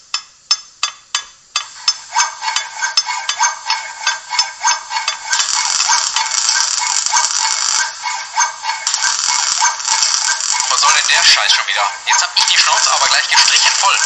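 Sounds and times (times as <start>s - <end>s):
rasping work noise: 0.0s - 14.0s
hissing: 1.7s - 14.0s.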